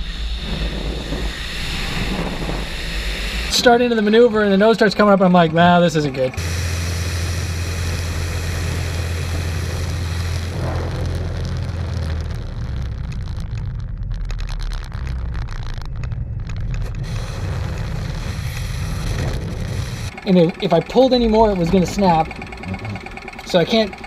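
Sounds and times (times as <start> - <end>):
airflow hiss: 0.0 - 10.8
aircraft engine drone: 0.0 - 13.6, 14.5 - 24.0.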